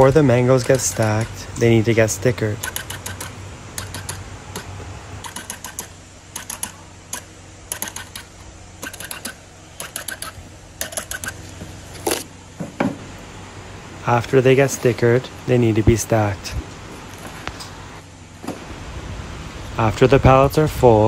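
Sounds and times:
steady low hum: 0:00.0 - 0:21.0
label applicator clicking: 0:00.5 - 0:01.4, 0:02.6 - 0:11.4.

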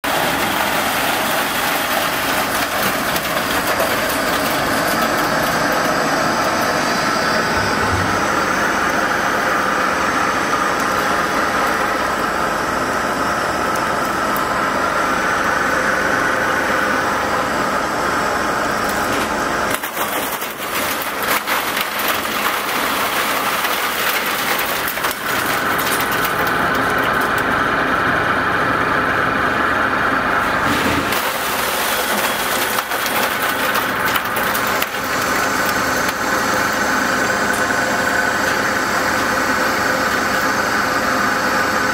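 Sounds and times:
ice machine humming: 0:00.0 - 0:41.9
ice crackling and clattering: 0:00.1 - 0:07.5, 0:18.8 - 0:27.9, 0:31.0 - 0:40.3.

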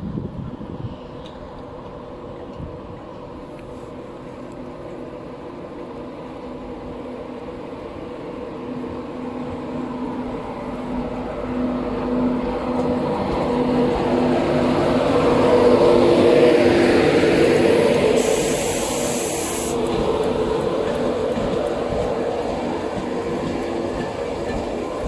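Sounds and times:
electric locomotive hum: 0:00.0 - 0:25.0
wheel and rail noise: 0:00.0 - 0:25.0.

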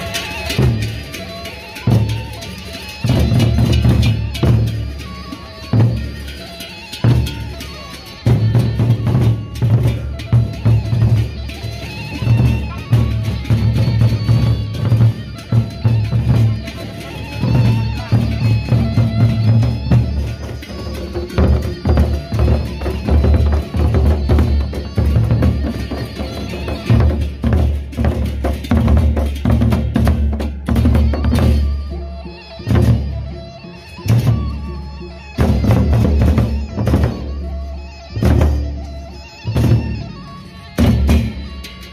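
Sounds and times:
barrel drums beaten: 0:00.0 - 0:32.0, 0:38.1 - 0:41.9
higher ringing percussion: 0:00.0 - 0:41.9.

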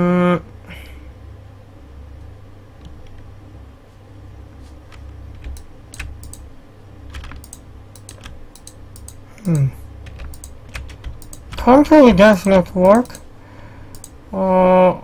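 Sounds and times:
steady low hum: 0:00.0 - 0:15.0
keyboard key clicks: 0:04.9 - 0:06.5, 0:07.1 - 0:13.2, 0:13.9 - 0:14.2.

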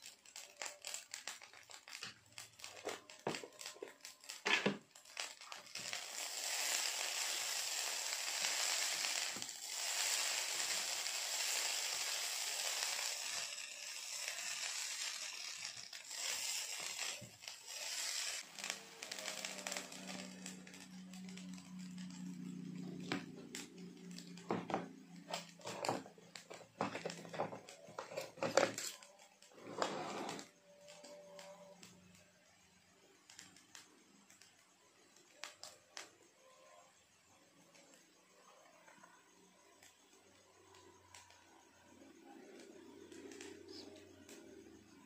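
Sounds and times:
rice scraping in a pot: 0:01.8 - 0:22.5, 0:24.7 - 0:30.6.

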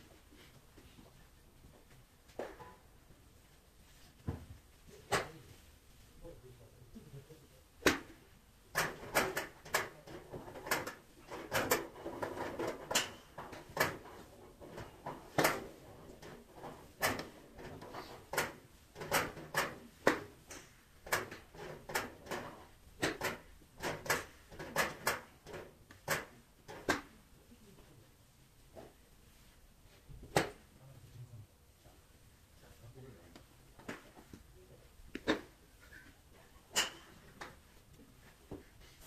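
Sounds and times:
golf clubs striking balls: 0:18.0 - 0:21.5, 0:36.7 - 0:37.6.

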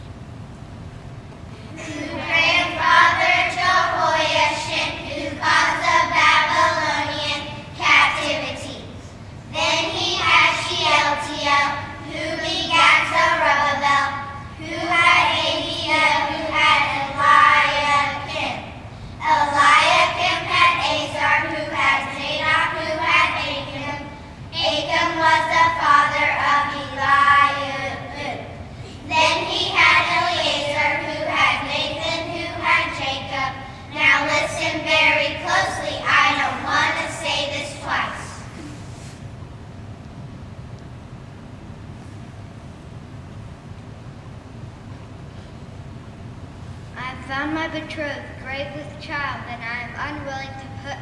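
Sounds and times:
young children singing: 0:01.7 - 0:38.7.

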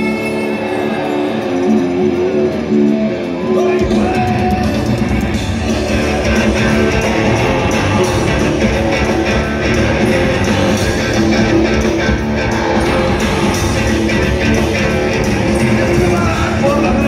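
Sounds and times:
rock band playing live: 0:00.0 - 0:17.0.

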